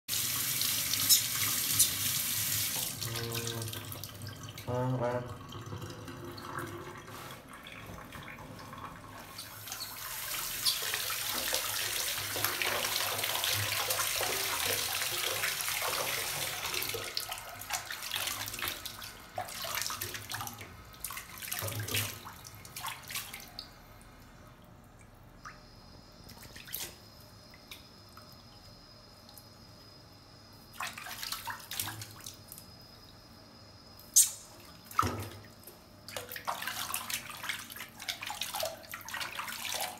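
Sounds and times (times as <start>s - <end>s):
water running from a tap: 0.1s - 23.6s.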